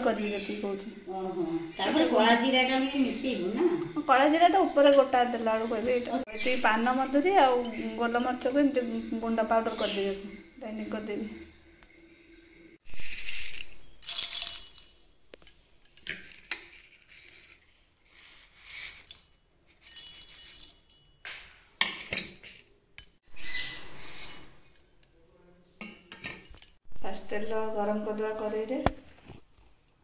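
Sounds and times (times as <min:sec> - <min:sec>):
steel plate and jar clanking: 0:13.0 - 0:15.0, 0:19.0 - 0:23.2
peppercorns rattling on steel: 0:13.0 - 0:16.2, 0:19.8 - 0:21.2.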